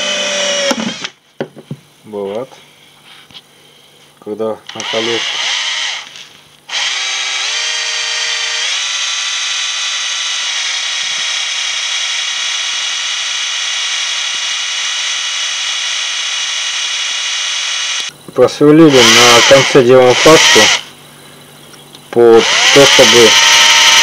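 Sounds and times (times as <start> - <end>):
cordless drill motor whine: 0.0 - 1.2, 4.7 - 18.1, 18.8 - 20.9, 22.2 - 24.0.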